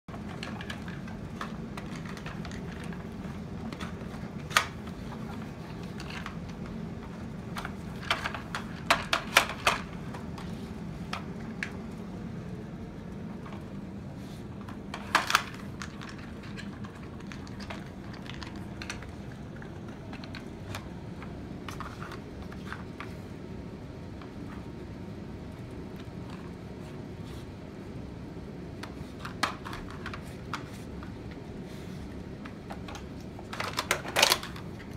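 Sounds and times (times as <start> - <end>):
plastic toys clicking and knocking: 0.1 - 10.5, 14.6 - 23.2, 28.8 - 31.2, 32.4 - 34.9
steady low hum: 0.1 - 34.9.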